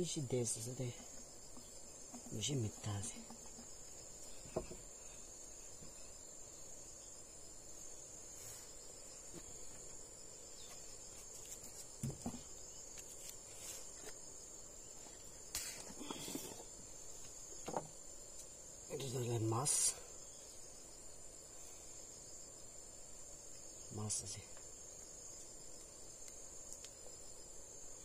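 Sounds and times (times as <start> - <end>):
insects chirping: 0.0 - 28.0
faint knocks and rustles: 1.0 - 5.1, 8.4 - 14.2, 14.9 - 18.5.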